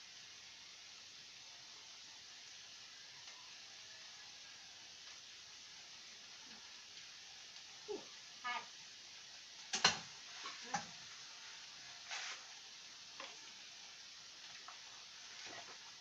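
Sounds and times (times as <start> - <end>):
food sizzling in pan: 0.0 - 16.0
utensil clanking against frying pan: 9.7 - 11.0.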